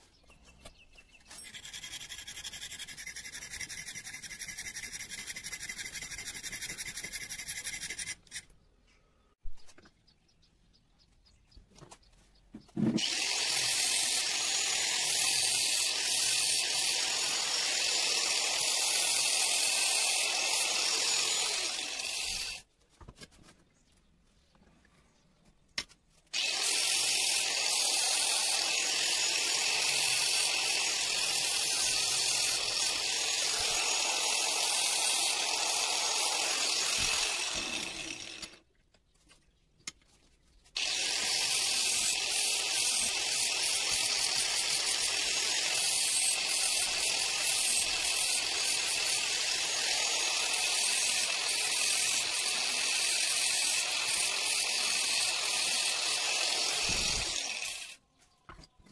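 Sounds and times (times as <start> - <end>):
angle grinder grinding metal: 1.2 - 8.5, 12.8 - 22.6, 26.4 - 38.6, 40.8 - 58.0.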